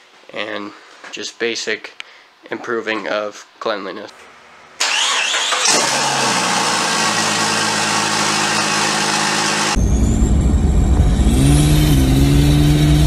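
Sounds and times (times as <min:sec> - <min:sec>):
engine rumble accelerating: 0:04.8 - 0:13.0
high whine rising: 0:05.7 - 0:13.0.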